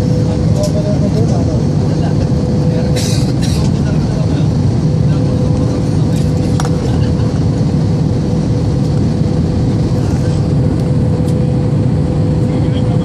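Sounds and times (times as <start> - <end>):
jet engine and airflow rumble: 0.0 - 13.0
steady cabin hum: 0.0 - 13.0.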